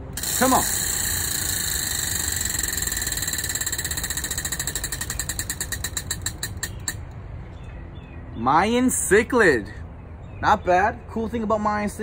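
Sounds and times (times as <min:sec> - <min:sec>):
prize wheel ticking: 0:00.0 - 0:07.1.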